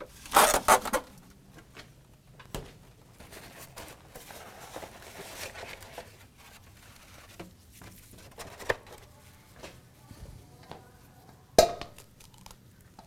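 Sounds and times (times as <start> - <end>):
egg carton rustling and crinkling: 3.1 - 9.7.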